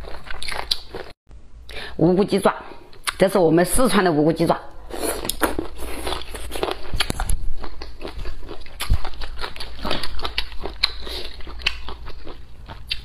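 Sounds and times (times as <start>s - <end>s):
chewing and slurping: 5.0s - 13.0s.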